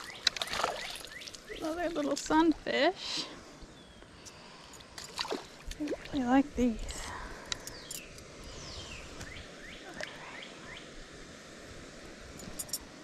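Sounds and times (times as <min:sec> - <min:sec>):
birds calling: 0:00.0 - 0:02.4, 0:07.4 - 0:10.9.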